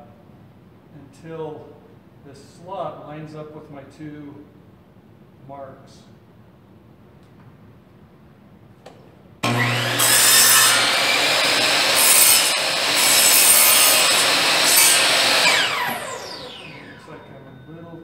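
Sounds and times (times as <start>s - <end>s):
miter saw cutting wood: 9.4s - 17.4s.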